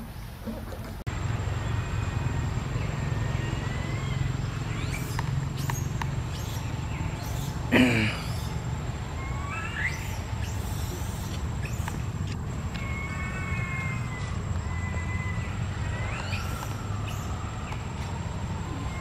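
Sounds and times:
animal calls with whistled glides: 9.2s - 17.7s.

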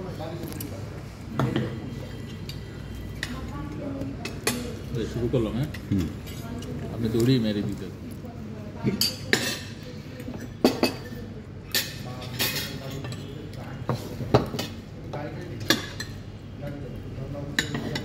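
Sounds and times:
cutlery clinking on plates: 8.8s - 14.9s, 15.5s - 16.2s, 17.4s - 18.0s.

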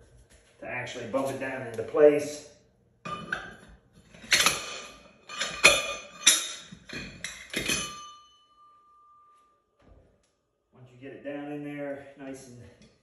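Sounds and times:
steel ringing tone: 7.5s - 9.7s.

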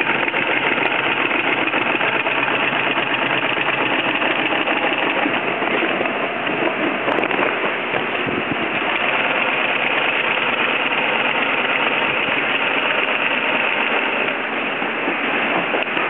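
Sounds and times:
sewing machine motor running: 0.0s - 6.1s, 8.7s - 14.4s.

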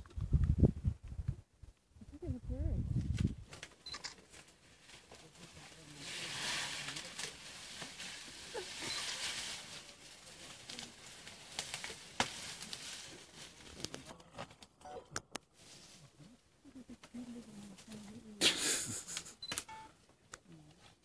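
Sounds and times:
leaves rustling: 3.0s - 14.7s, 15.5s - 19.4s
sharp branch crack: 10.5s - 14.7s
twigs snapping: 10.6s - 13.0s.

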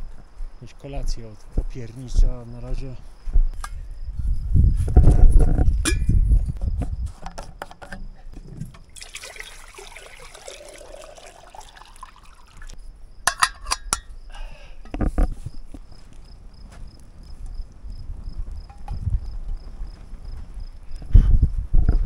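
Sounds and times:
jug and kettle bumping: 7.7s - 12.7s, 13.3s - 14.0s
water pouring into a kettle: 8.8s - 12.8s.

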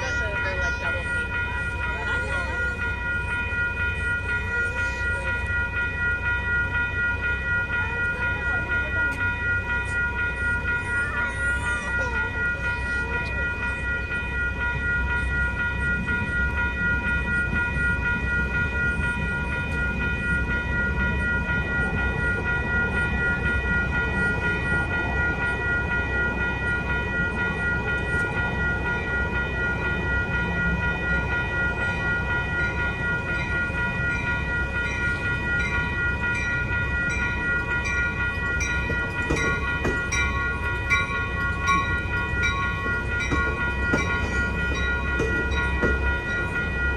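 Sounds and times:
crossing bells ringing: 0.0s - 46.9s
train rumbling: 0.0s - 46.9s
train wheels clicking: 32.5s - 46.9s.

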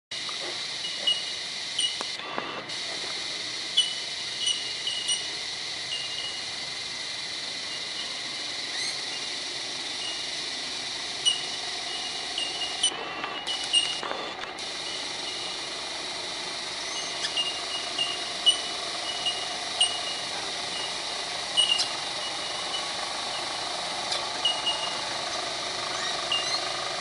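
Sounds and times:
high-pitched insect buzzing: 0.2s - 2.2s, 3.4s - 27.0s.

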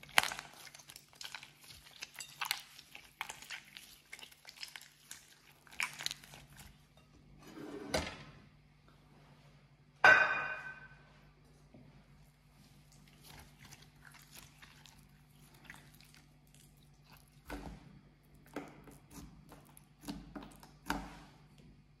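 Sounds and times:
slime crackling and squishing: 0.0s - 6.9s, 12.5s - 21.4s.

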